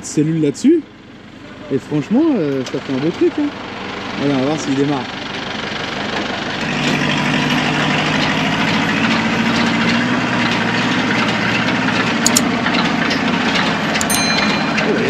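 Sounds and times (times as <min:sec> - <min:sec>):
diesel engines running: 0:00.0 - 0:15.0.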